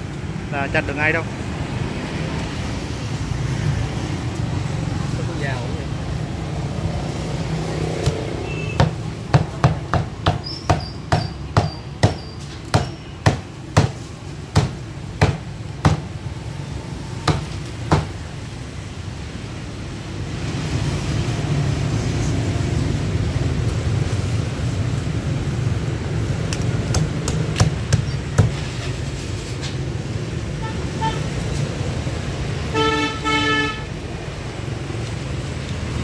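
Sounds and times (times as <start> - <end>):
low rumble of street traffic: 0.0 - 36.0
cleaver chopping on wooden block: 8.0 - 16.1, 17.2 - 18.1, 26.9 - 28.6.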